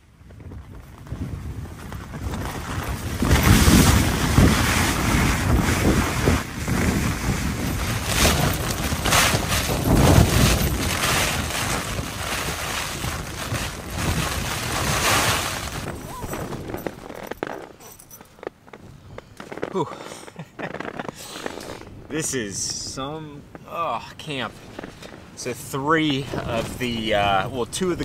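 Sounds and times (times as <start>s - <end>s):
wind rumble on microphone: 0.0s - 19.7s, 20.8s - 28.0s
tent fly shaking and snapping: 7.9s - 18.8s.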